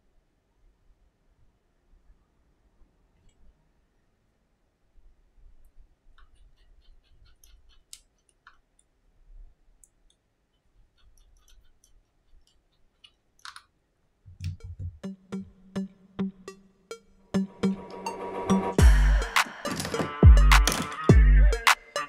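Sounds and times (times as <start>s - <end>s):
background music with steady beat: 14.3s - 22.0s.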